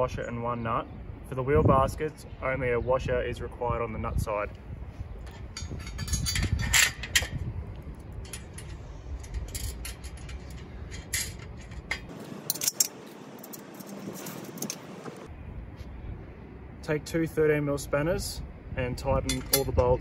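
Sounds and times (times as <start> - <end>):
metal bolts clinking on steel: 5.3 - 7.4, 8.2 - 14.9, 19.2 - 20.0.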